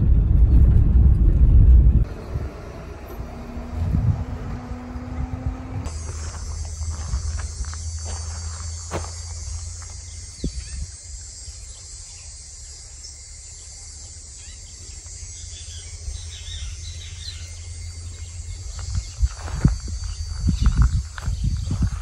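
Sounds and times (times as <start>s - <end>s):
wind rumbling on microphone: 0.0s - 11.6s, 18.0s - 22.0s
footsteps on dirt road: 5.8s - 11.0s, 16.2s - 22.0s
bird chirps: 5.9s - 22.0s
insects hissing: 5.9s - 22.0s.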